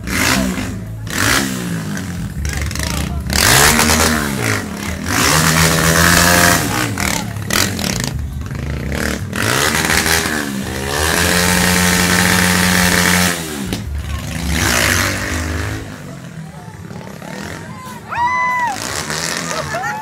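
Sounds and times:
motorcycle engine revving: 0:00.0 - 0:17.8, 0:18.7 - 0:20.0.

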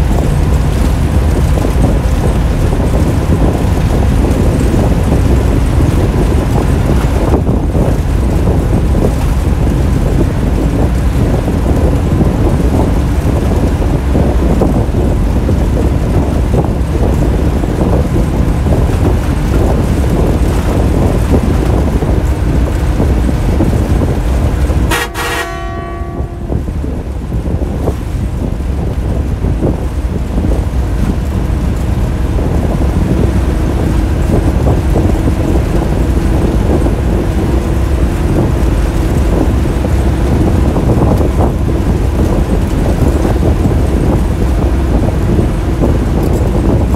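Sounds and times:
bus engine and road noise: 0:00.0 - 0:46.9
bus horn blast: 0:24.8 - 0:27.0.

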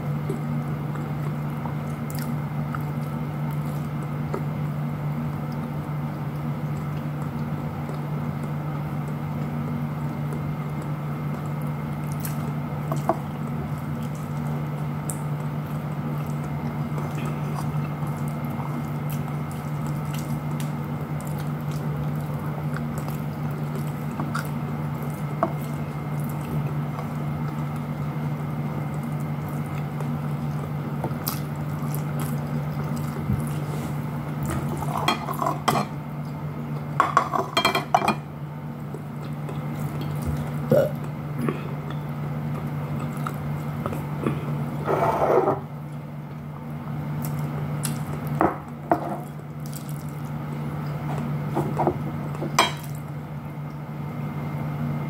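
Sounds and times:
steady low hum: 0:00.0 - 0:55.0
person chewing: 0:00.3 - 0:09.5, 0:10.1 - 0:35.6, 0:38.8 - 0:44.8, 0:47.2 - 0:48.4.

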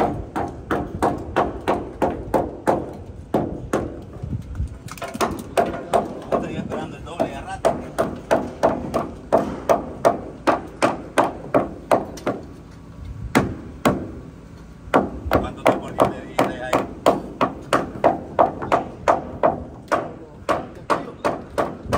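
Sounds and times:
hammer driving nails into wood: 0:00.0 - 0:04.1, 0:04.8 - 0:12.5.

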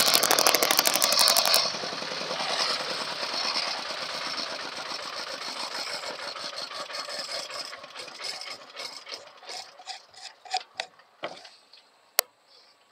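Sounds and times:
small engine shutting down: 0:00.0 - 0:09.2.

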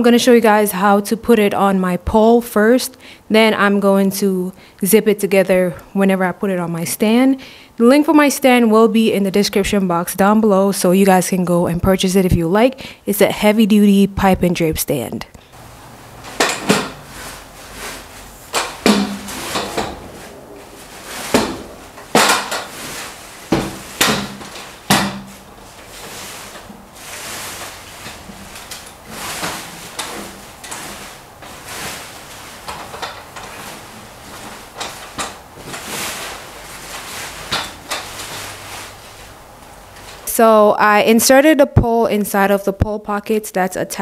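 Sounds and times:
plastic foliage rustling: 0:15.6 - 0:40.3
metal pole knocking and clanking: 0:16.3 - 0:17.1, 0:18.5 - 0:20.1, 0:23.5 - 0:25.4.

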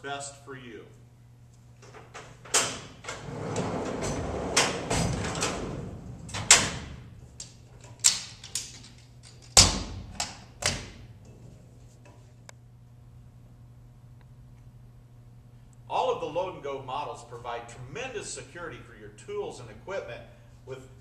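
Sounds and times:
metal door clunking and latching: 0:01.8 - 0:11.1
metal drawer rolling shut: 0:02.4 - 0:07.2.

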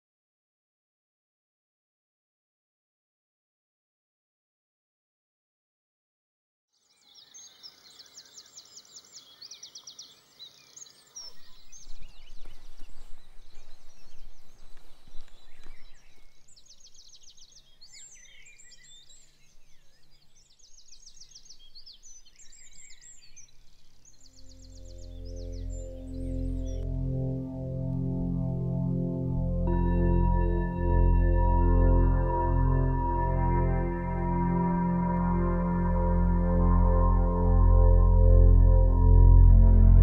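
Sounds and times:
songbirds trilling: 0:07.1 - 0:26.8
low rumble: 0:24.4 - 0:40.0.

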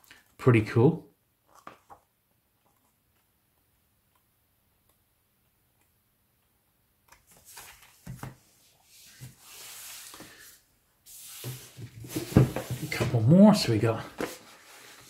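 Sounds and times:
paper sliding and rustling: 0:07.3 - 0:15.0
books knocking: 0:12.0 - 0:13.3.

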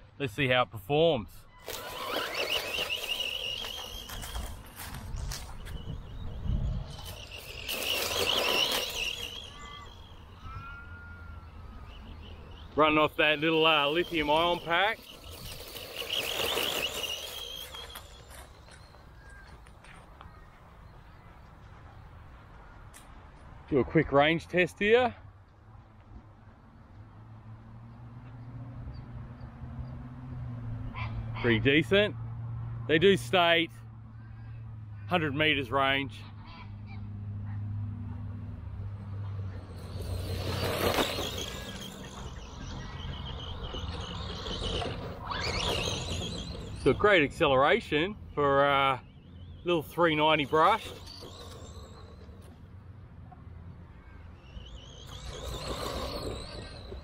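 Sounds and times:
tyres on grass: 0:01.6 - 0:06.0, 0:12.6 - 0:20.7, 0:39.8 - 0:47.4
electric motor whining: 0:01.6 - 0:10.6, 0:11.4 - 0:18.6, 0:49.8 - 0:52.5, 0:54.9 - 0:57.0.

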